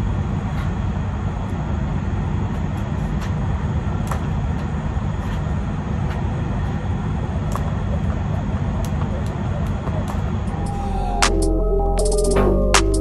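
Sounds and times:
jump rope slapping ground: 2.5 - 10.5.

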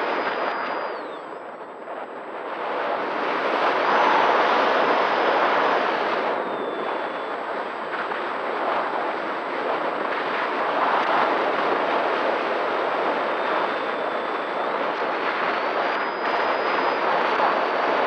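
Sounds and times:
electric motor whine: 0.0 - 1.2, 3.1 - 7.3, 15.3 - 18.0
wind buffeting microphone: 0.0 - 18.0.

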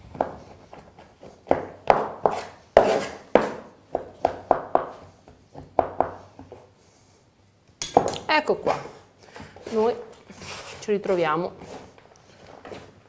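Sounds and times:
knife chopping on wooden board: 0.1 - 6.2.

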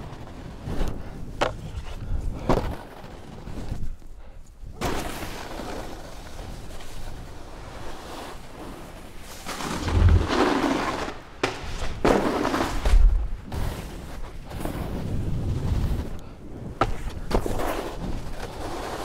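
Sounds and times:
snowboard scraping over snow: 0.0 - 4.0, 4.7 - 19.0.

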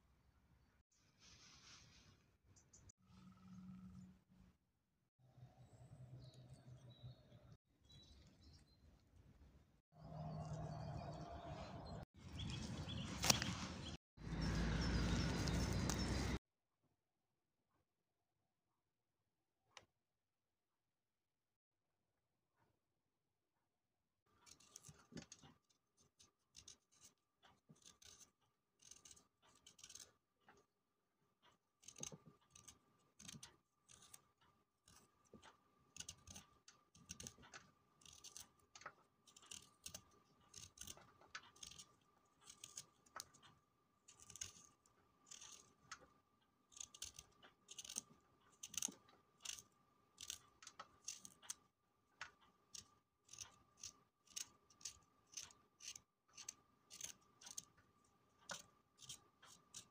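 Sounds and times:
knife scraping root skin: 12.6 - 13.7, 24.4 - 25.4, 26.0 - 30.2, 31.8 - 34.2, 36.0 - 43.4, 44.1 - 46.0, 46.7 - 51.5, 52.8 - 57.8, 58.4 - 59.9.

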